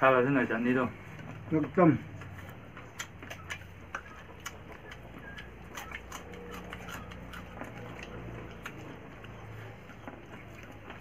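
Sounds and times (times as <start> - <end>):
low steady hum: 0.0 - 11.0
chewing clicks and smacks: 2.1 - 11.0.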